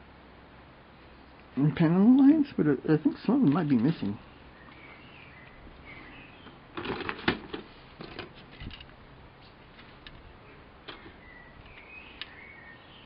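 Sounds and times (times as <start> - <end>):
small bird chirping: 4.2 - 6.6, 10.2 - 13.0.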